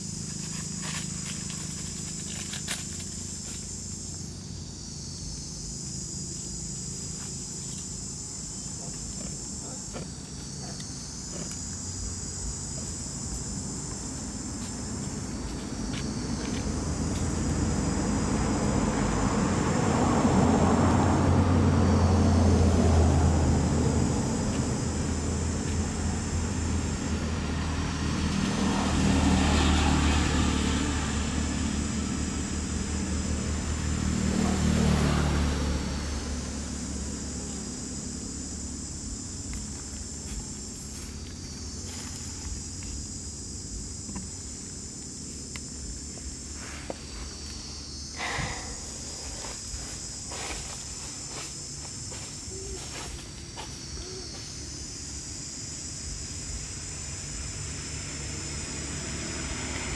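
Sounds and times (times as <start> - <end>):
high insect chorus: 0.0 - 59.9
vehicles passing by: 0.0 - 59.9.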